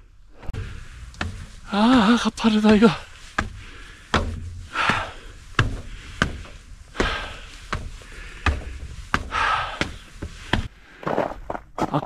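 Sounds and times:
breathy exhales: 0.3 - 1.7, 3.0 - 11.1
boots knocking on rock: 0.7 - 12.0.

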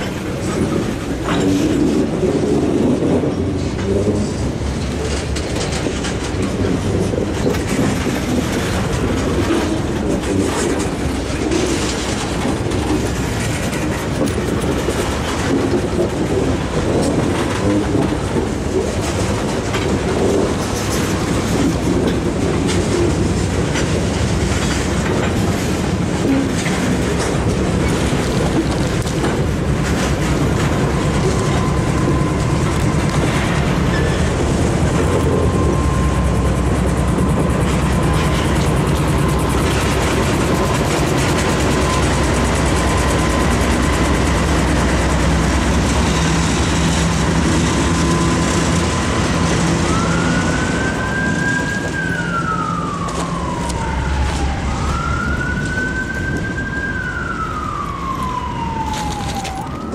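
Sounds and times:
wheel clicks over rail joints: 0.0 - 35.5
freight train rumble: 0.0 - 59.9.

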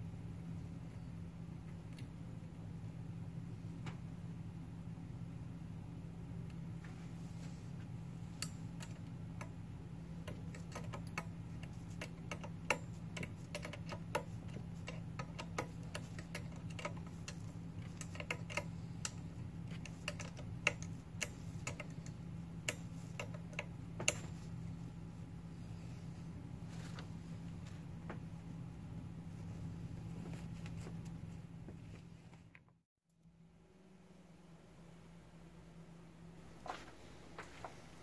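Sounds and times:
small metal parts clicking: 10.2 - 24.2.

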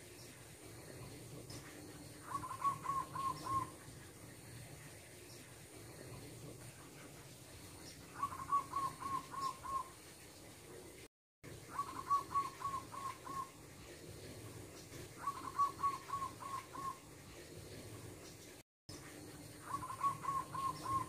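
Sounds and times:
dove cooing: 0.9 - 4.6, 8.0 - 10.0, 11.5 - 18.0, 19.3 - 21.0.

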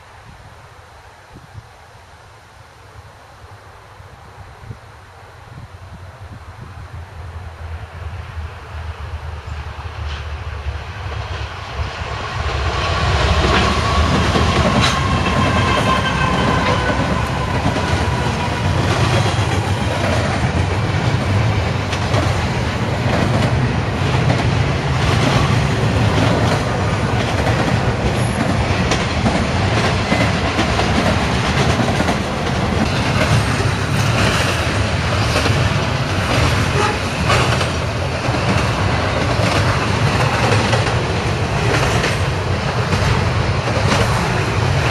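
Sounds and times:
locomotive whine: 7.6 - 44.9
freight cars rumbling and rattling: 13.2 - 44.9
wheels clacking over rail joints: 13.2 - 44.9.

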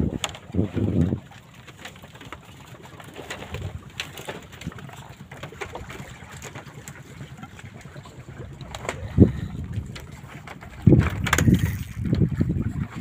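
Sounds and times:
wind buffeting microphone: 0.0 - 1.3, 7.2 - 13.0.

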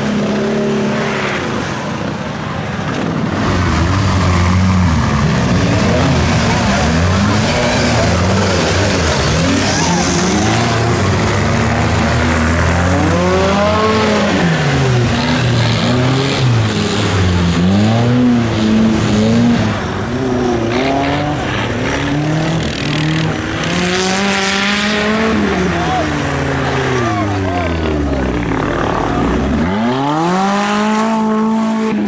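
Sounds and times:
truck engines revving: 0.0 - 32.0.

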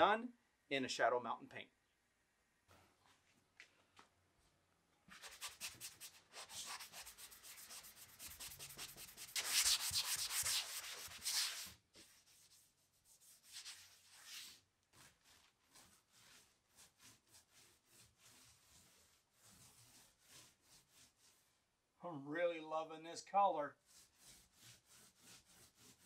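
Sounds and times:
paintbrush scrubbing strokes: 5.1 - 21.7, 23.7 - 26.0.

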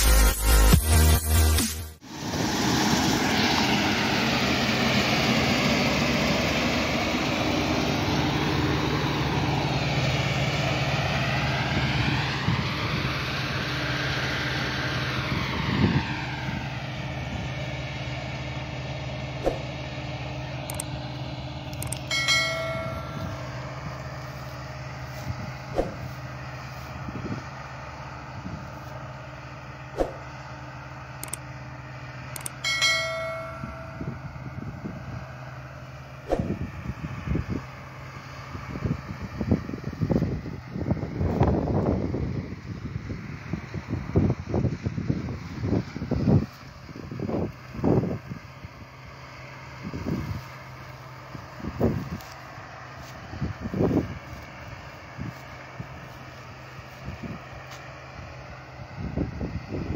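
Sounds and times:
combine harvester engine and threshing: 0.0 - 59.9
bell-like chime: 21.9 - 23.7, 32.4 - 34.5.

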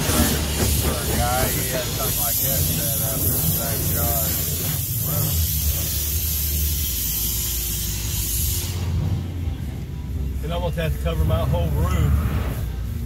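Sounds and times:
water jets spraying on windshield: 0.0 - 9.6
low rumble: 0.0 - 13.0.

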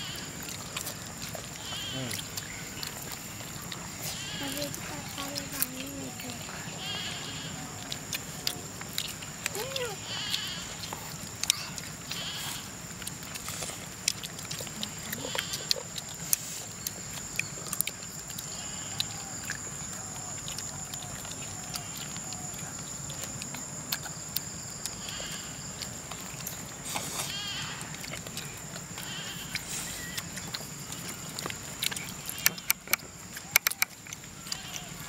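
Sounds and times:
sharp clicks and taps: 32.4 - 34.0.

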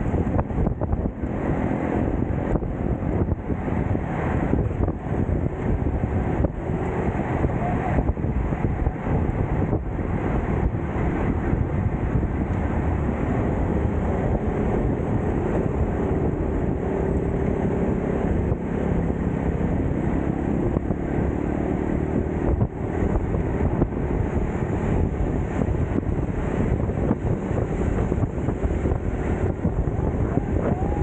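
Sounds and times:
low road rumble: 0.0 - 31.0
wind buffeting microphone: 0.0 - 31.0.

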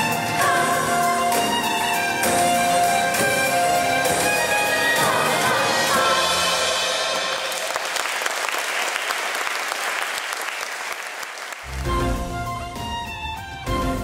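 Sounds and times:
song ending: 0.0 - 8.5
audience applauding: 7.0 - 12.3.

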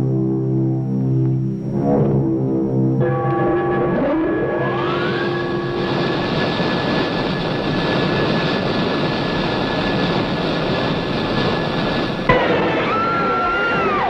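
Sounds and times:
rumbling drum roll: 3.4 - 14.0.

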